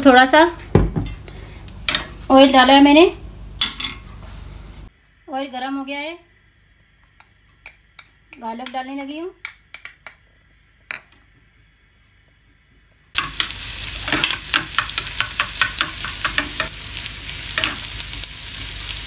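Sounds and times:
garlic sizzling in hot oil: 0:04.6 - 0:19.0
spoon scraping pan: 0:13.2 - 0:16.8.

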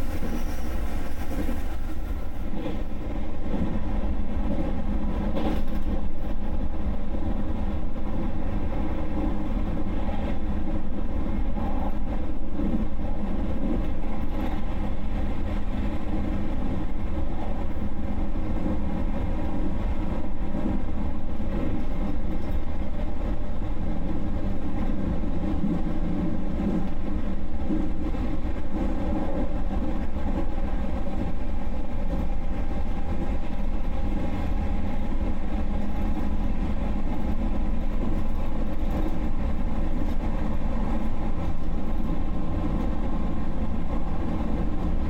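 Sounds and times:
train rumble: 0:00.0 - 0:45.0.

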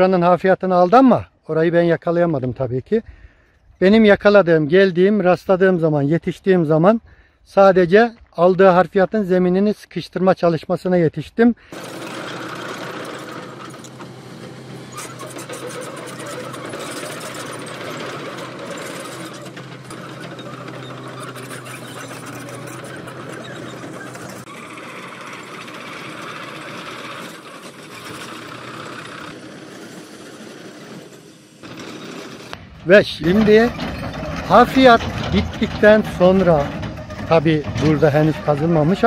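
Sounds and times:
excavator engine hum: 0:11.6 - 0:39.0
fast continuous rattling clatter: 0:11.7 - 0:39.0.

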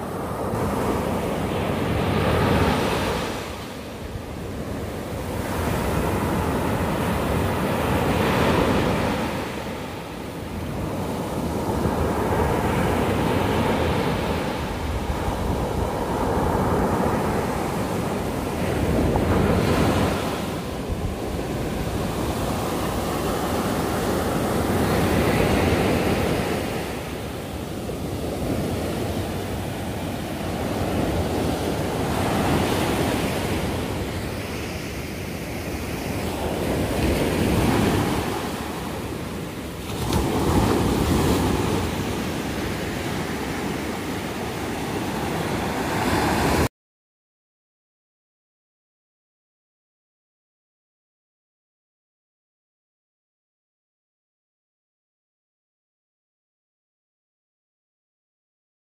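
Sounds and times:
ocean surf breaking on beach: 0:00.0 - 0:46.7.

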